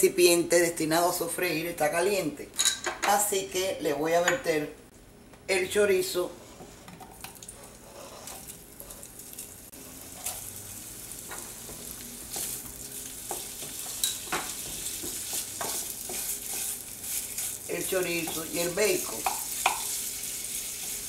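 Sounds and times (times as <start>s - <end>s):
meat sizzling in a pot: 8.0s - 21.0s
utensil knocking against pot: 19.2s - 19.8s.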